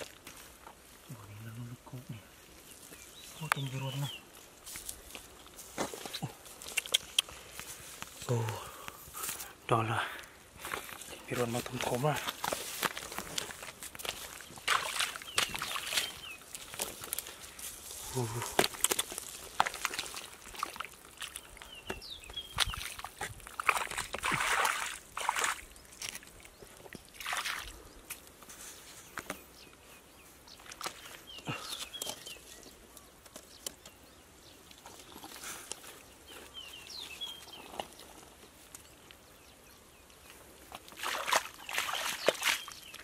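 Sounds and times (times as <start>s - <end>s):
mud squelching and water sloshing: 2.5s - 28.3s, 30.5s - 32.7s, 34.6s - 39.1s, 40.3s - 43.0s
splashing through water: 13.4s - 16.8s, 18.1s - 21.8s, 22.4s - 26.5s, 27.1s - 27.8s, 40.8s - 43.0s.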